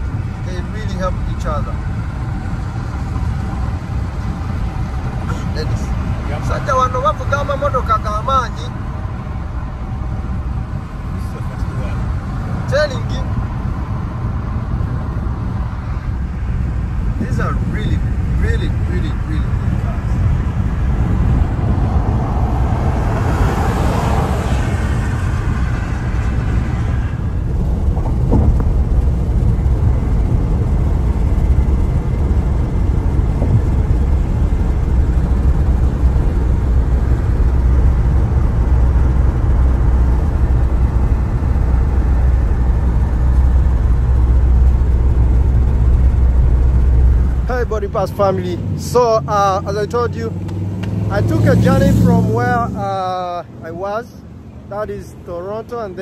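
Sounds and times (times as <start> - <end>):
rushing noise: 0.0 - 50.4
car road rumble: 0.0 - 56.0.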